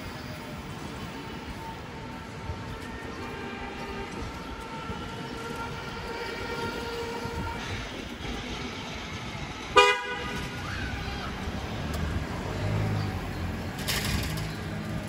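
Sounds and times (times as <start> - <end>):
street noise: 0.0 - 15.0
loud horn blast: 3.2 - 8.0, 9.7 - 10.6.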